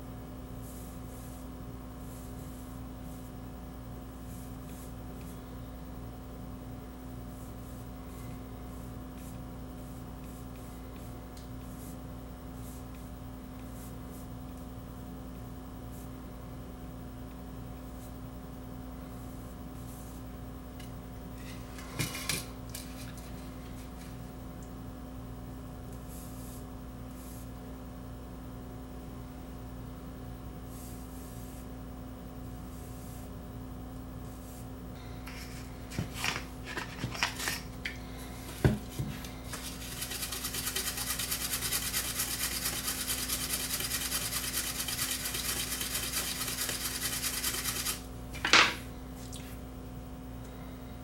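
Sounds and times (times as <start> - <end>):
electrical hum: 0.0 - 51.0
toothbrush scrubbing circuit board: 39.2 - 48.0.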